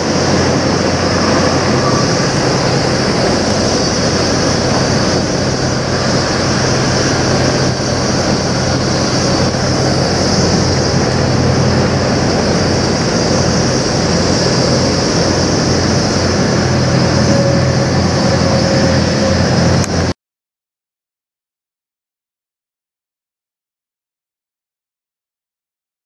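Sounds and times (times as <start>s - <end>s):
steady hiss: 0.0s - 20.1s
truck engine idling: 0.0s - 20.1s.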